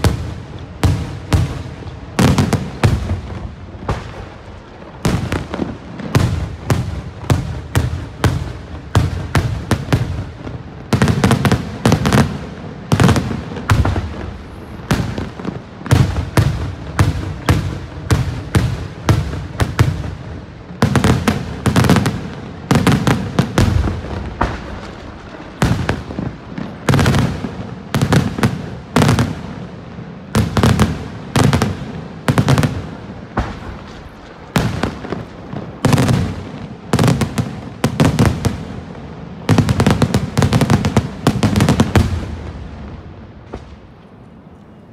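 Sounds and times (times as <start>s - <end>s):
fireworks bursting: 0.0s - 44.9s.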